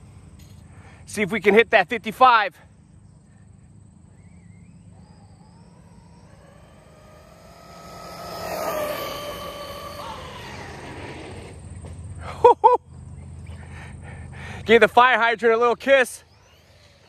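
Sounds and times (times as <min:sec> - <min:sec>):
rc truck motor whining: 0:03.8 - 0:11.9, 0:15.5 - 0:17.0.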